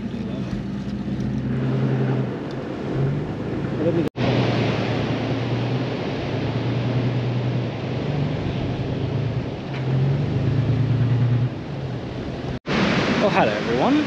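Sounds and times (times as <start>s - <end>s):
vehicle engine running: 0.0s - 2.4s
surf: 0.0s - 14.0s
wind: 0.0s - 14.0s.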